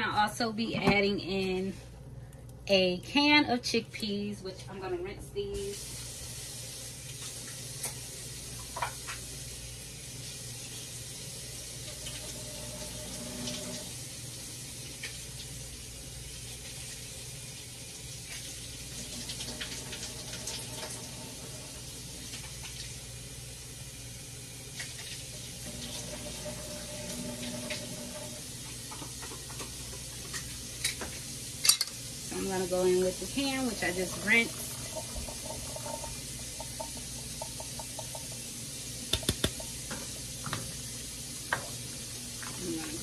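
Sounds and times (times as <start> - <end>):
tap running into a sink: 8.6 - 9.2, 34.1 - 38.5, 39.1 - 40.8, 41.5 - 41.8.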